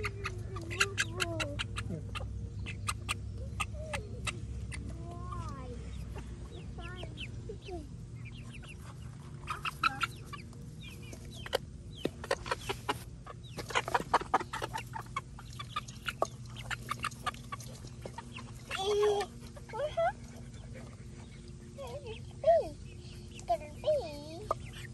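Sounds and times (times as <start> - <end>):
hens clucking and chirping: 0.0 - 24.9
beaks pecking in steel bowl: 13.4 - 22.2.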